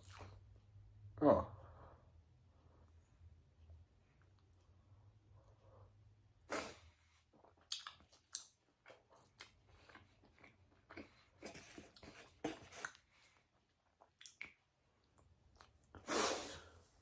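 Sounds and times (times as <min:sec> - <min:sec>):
person chewing food: 0:00.0 - 0:00.6, 0:07.0 - 0:16.1
mouth smacks and clicks: 0:07.4 - 0:09.6, 0:14.0 - 0:16.0.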